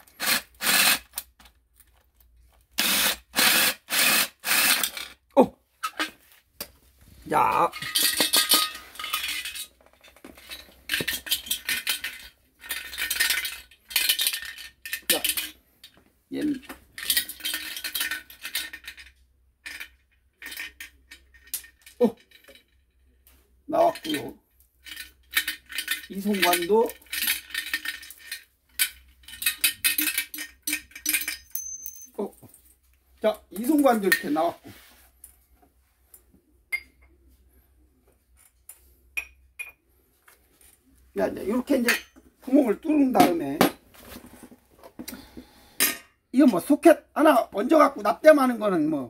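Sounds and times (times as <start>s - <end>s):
metal tank clinks and rattles: 7.7s - 15.5s.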